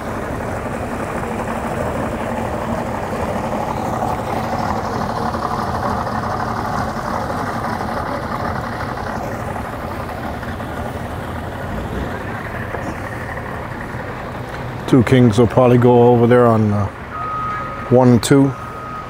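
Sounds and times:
outboard motor idling: 0:00.0 - 0:19.0.

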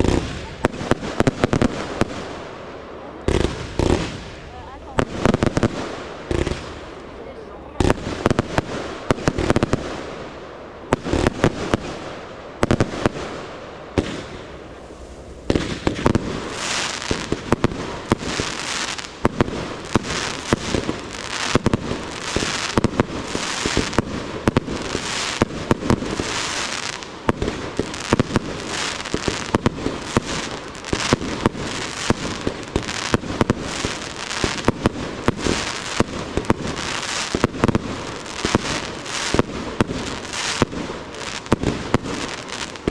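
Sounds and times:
fireworks bangs: 0:00.0 - 0:42.9
fireworks hiss: 0:00.0 - 0:42.9.

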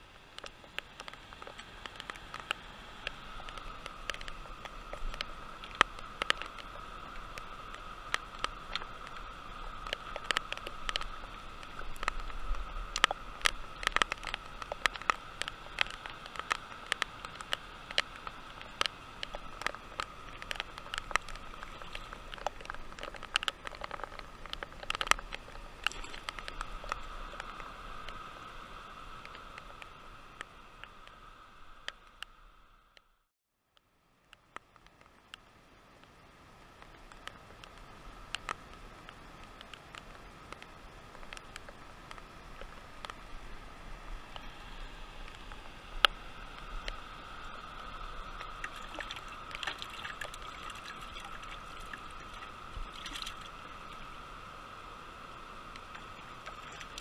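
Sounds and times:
water rushing over dam: 0:47.0 - 0:54.2, 0:55.9 - 0:57.0
fishing gear clicking: 0:48.4 - 0:53.6.

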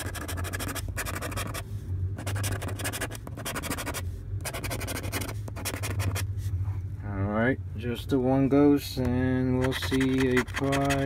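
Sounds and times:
scratching lottery ticket: 0:00.0 - 0:01.6, 0:02.2 - 0:06.2, 0:09.6 - 0:11.0.

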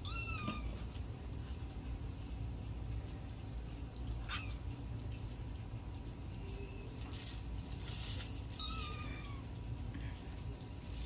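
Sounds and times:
cat meowing: 0:00.0 - 0:00.8, 0:08.5 - 0:09.5.

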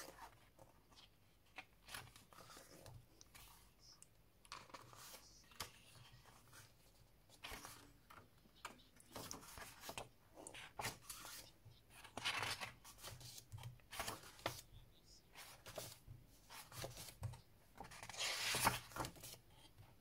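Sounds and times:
glossy paper pages turning: 0:09.0 - 0:14.6, 0:17.8 - 0:19.4.

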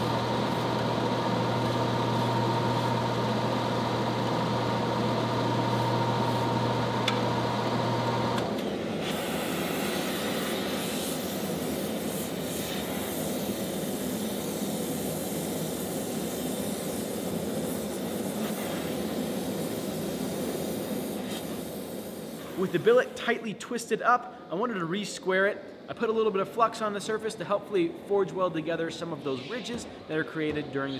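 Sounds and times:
machine hum with whine: 0:00.0 - 0:12.3.

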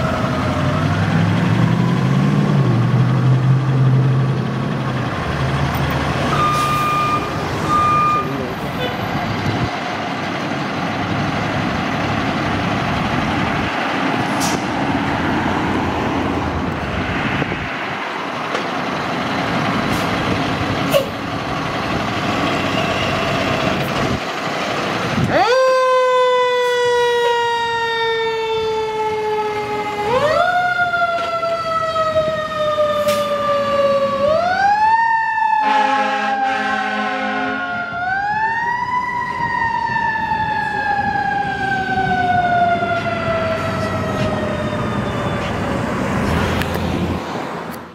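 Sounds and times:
fire engine running: 0:00.0 - 0:47.9
siren wailing: 0:06.2 - 0:08.9, 0:25.2 - 0:46.3.

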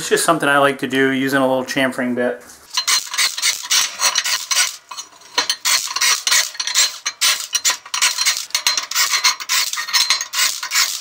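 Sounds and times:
metal scraping on steel: 0:02.7 - 0:11.0.

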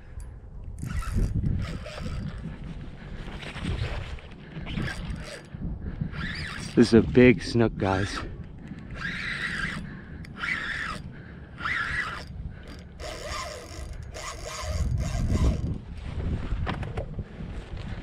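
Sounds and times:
fishing reel ratcheting: 0:00.8 - 0:02.5, 0:04.6 - 0:05.5, 0:06.1 - 0:06.9, 0:07.9 - 0:15.8.

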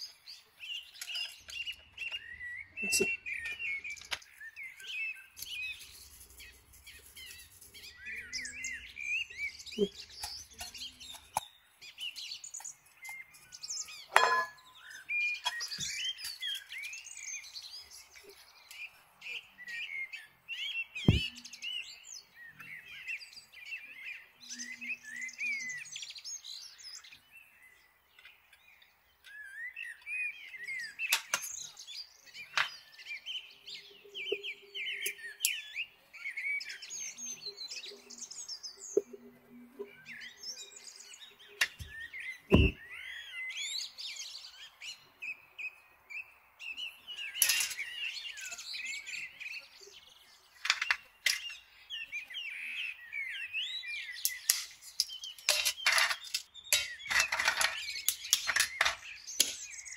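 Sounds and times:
small birds chirping: 0:00.0 - 0:59.9
sharp knocks: 0:21.1 - 0:21.3, 0:42.5 - 0:42.8.

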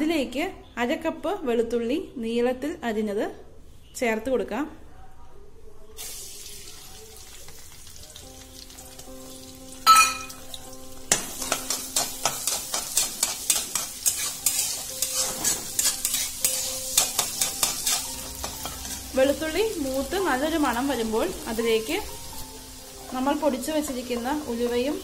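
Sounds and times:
garlic sizzling in oil: 0:06.0 - 0:25.0
metal spatula scraping wok: 0:11.4 - 0:19.3.

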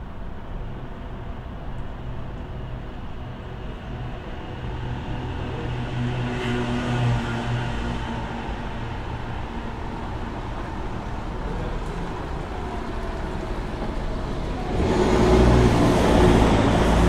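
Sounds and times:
city traffic rumble: 0:00.0 - 0:17.0
vehicle passing: 0:10.3 - 0:17.0.

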